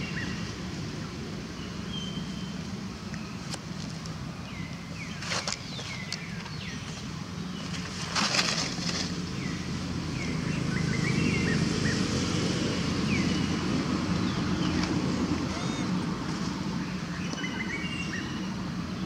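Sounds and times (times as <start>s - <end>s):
falling bird chirps: 14.3s - 16.0s.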